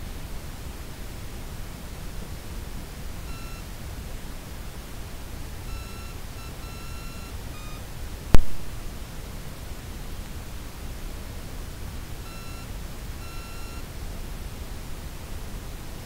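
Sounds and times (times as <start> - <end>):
low recording hiss: 0.0 - 16.0
high-pitched beeps: 3.3 - 3.7, 5.6 - 7.8, 12.2 - 13.9
loud sharp click: 8.4 - 8.6.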